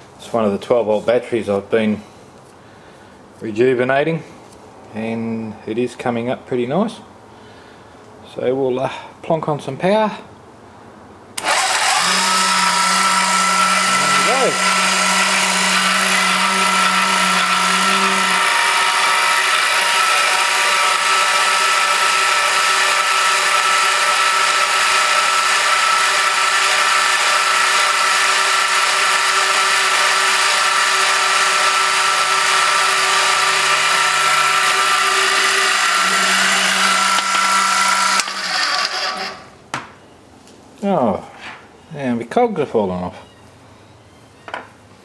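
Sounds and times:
small metal lathe running: 11.4 - 39.5.

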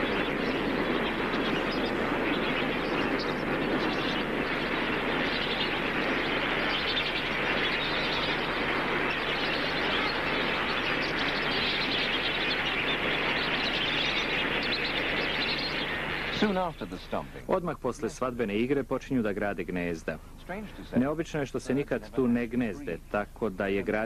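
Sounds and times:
flock of flamingos calling: 0.0 - 17.6.

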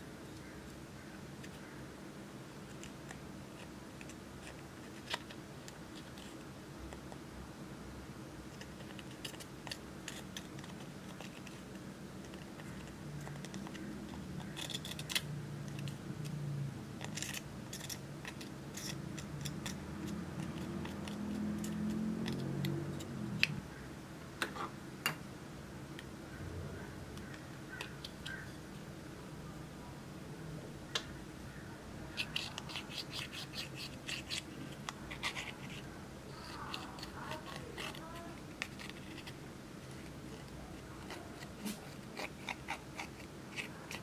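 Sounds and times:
faint low hum: 0.0 - 44.0
metal scissors scraping plastic: 8.6 - 16.4, 17.0 - 23.1, 32.2 - 39.4.

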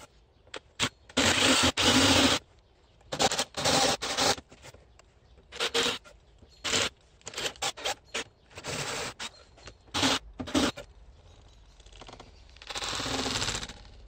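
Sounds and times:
drill boring into wood: 10.0 - 10.8, 12.6 - 13.8.

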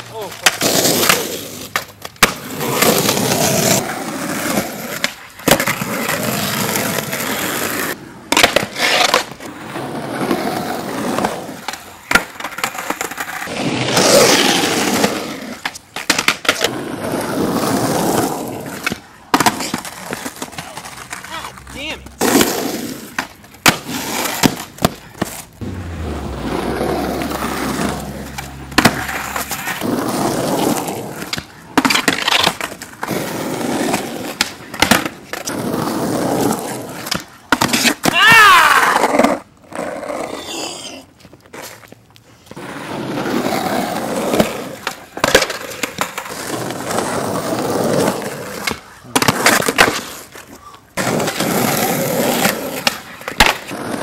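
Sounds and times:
skateboard clacking against ground: 0.0 - 3.1, 4.5 - 6.2, 8.3 - 9.5, 11.2 - 13.4, 15.6 - 16.7, 18.7 - 22.5, 23.1 - 25.5, 27.2 - 29.9, 30.6 - 33.2, 33.9 - 35.6, 44.3 - 47.1, 48.0 - 51.7, 52.3 - 54.0
skateboard wheels rolling on concrete: 0.0 - 54.0.

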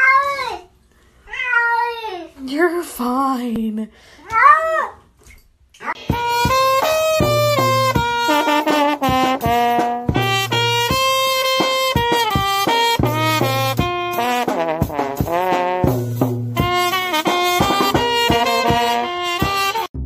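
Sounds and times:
upbeat brass music: 6.0 - 20.0.

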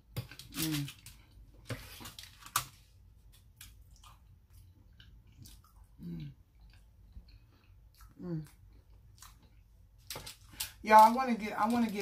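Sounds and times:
chewing and lip smacks: 3.7 - 9.8.

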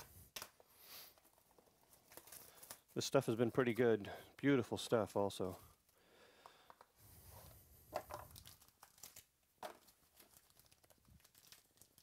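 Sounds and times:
foil pack crinkling and tearing: 0.0 - 3.0, 8.1 - 12.0.

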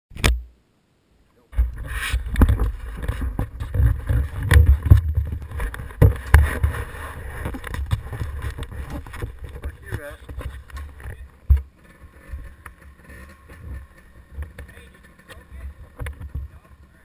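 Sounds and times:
camera housing knocks and rubbing: 1.6 - 16.5.

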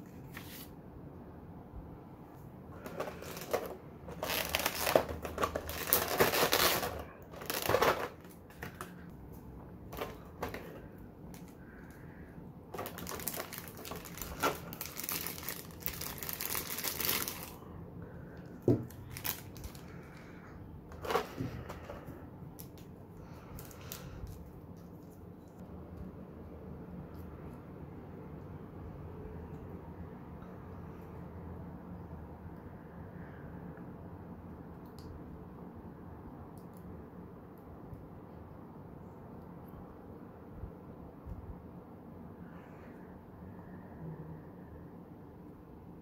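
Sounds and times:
plastic packaging crinkling: 2.8 - 9.1, 12.7 - 17.6, 18.4 - 20.2, 20.9 - 22.0.

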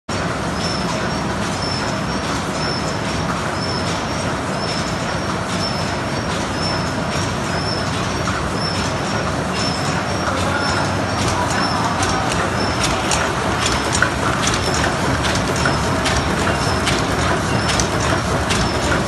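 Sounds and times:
machine mechanical clatter: 0.1 - 19.0.

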